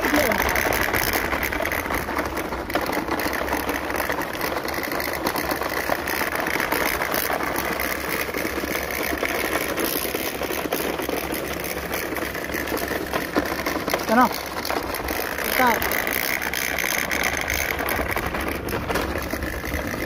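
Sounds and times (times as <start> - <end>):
small clicks and crackles: 0.0 - 20.0
small electric motor running: 0.0 - 20.0.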